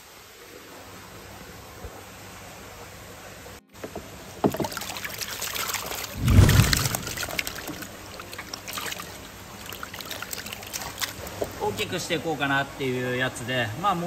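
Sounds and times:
water sloshing and splashing: 4.5s - 11.6s
heavy low thud: 6.2s - 7.6s.

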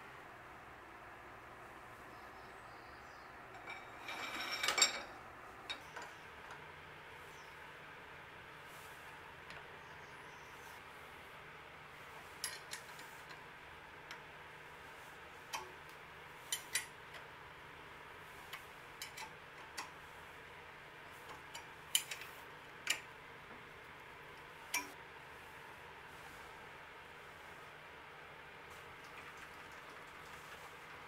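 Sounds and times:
faint steady hiss: 0.0s - 31.0s
metal-on-metal clicks and taps: 18.5s - 20.0s, 21.3s - 23.1s, 24.7s - 25.0s.

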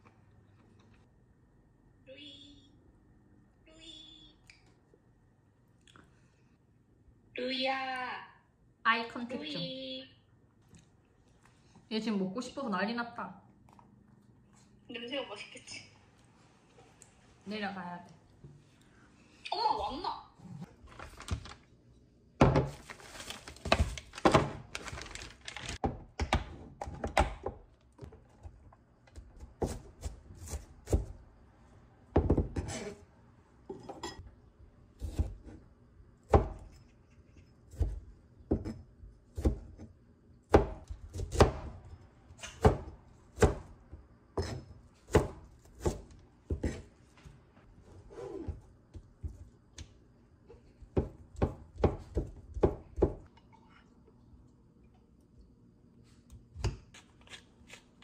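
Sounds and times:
plastic packaging crinkling: 20.8s - 21.7s, 22.8s - 25.8s.

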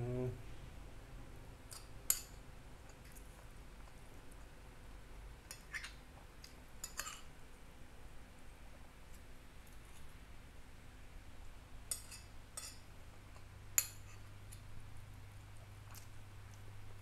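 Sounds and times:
metal spoon clinking on glass plate: 11.9s - 12.8s.

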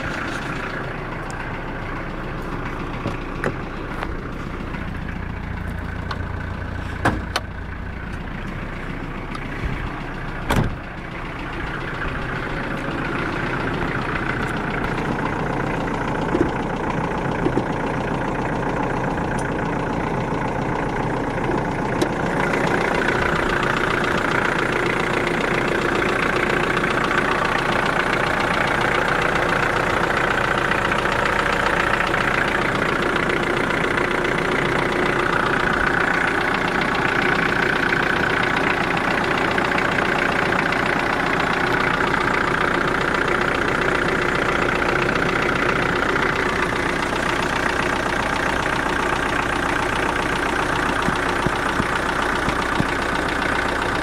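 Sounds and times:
car engine idling: 0.0s - 54.0s
sharp engine knocks: 6.0s - 8.3s, 10.4s - 10.9s, 50.9s - 53.3s.

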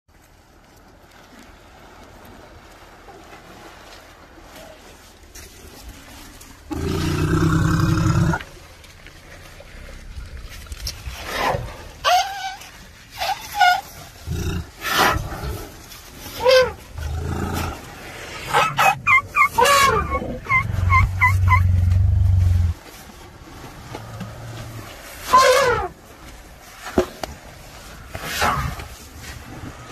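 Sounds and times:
elephant squeaky calls: 12.0s - 14.0s, 18.5s - 22.7s
elephant rumbling call: 16.4s - 22.8s, 24.2s - 26.0s.

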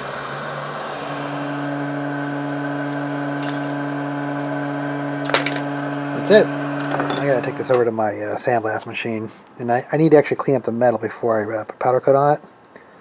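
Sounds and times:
heat gun fan hum and air rush: 0.0s - 9.6s.

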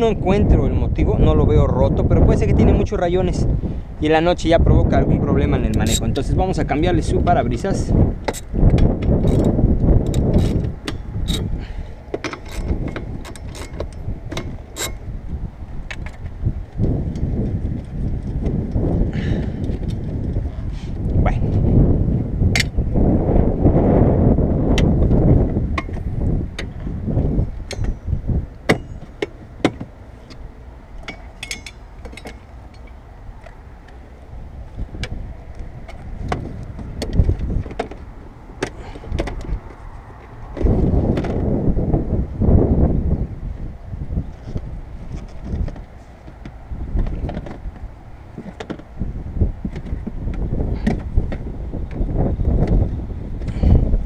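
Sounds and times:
metal tools clinking: 5.8s - 6.2s, 31.0s - 33.0s.

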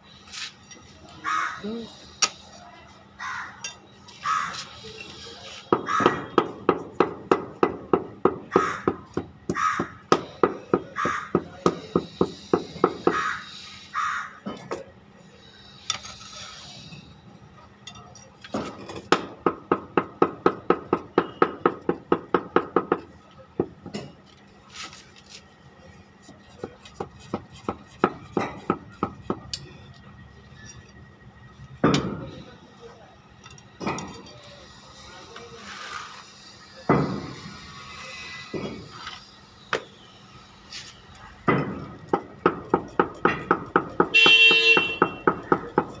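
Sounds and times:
bird calling: 13.0s - 14.4s.

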